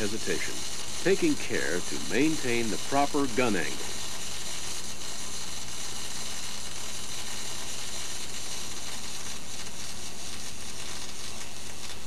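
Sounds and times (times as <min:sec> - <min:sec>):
welding arc hissing: 0:00.0 - 0:12.0.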